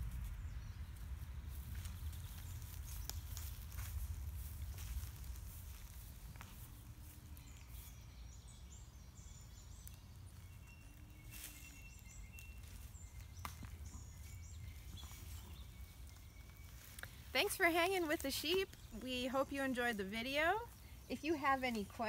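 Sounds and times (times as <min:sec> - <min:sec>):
steady low rumble: 0:00.0 - 0:08.3
small birds chirping: 0:00.0 - 0:22.0.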